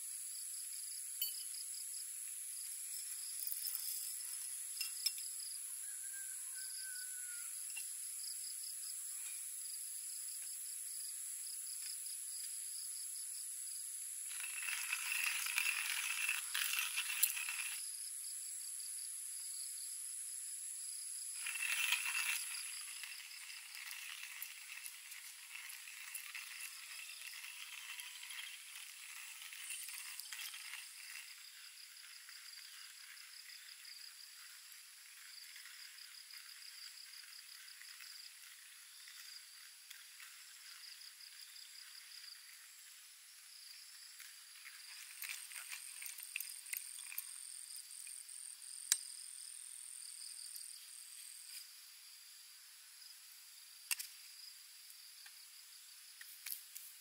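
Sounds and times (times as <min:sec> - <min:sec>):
insects trilling: 0:00.0 - 0:57.0
beans rattling in hand grinder: 0:00.2 - 0:08.5, 0:14.0 - 0:18.1, 0:20.9 - 0:50.9.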